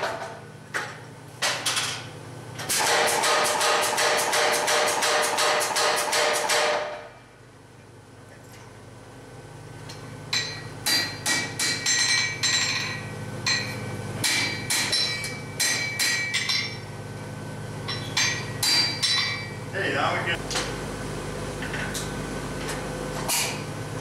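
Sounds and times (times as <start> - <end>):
steady low hum: 0.0 - 24.0
power hammer rapid blows: 2.7 - 6.9
hand hammer striking iron on anvil: 2.7 - 7.0, 10.3 - 16.8, 17.9 - 19.5.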